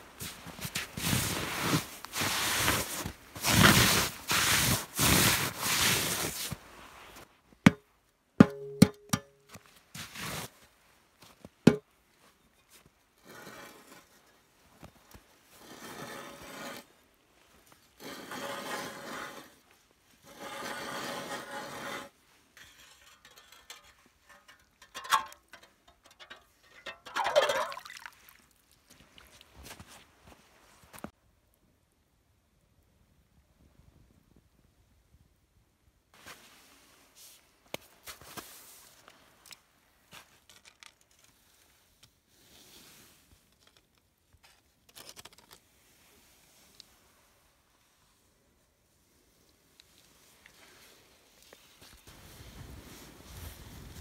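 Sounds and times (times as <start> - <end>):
boots crunching on snow: 0.2 - 6.6.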